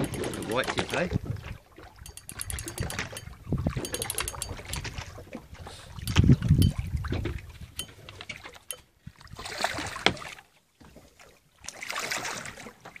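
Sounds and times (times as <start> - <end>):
water splashing: 9.2 - 10.5, 11.2 - 12.8.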